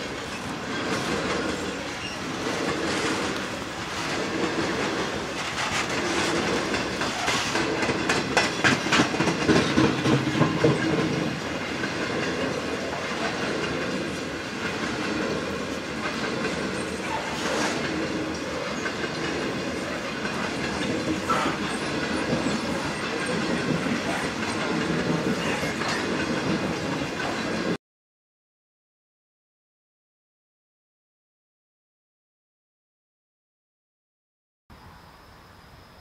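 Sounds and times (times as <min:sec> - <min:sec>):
train wheels clacking over rail joints: 0:00.0 - 0:27.8
high wheel squeal: 0:01.8 - 0:02.6.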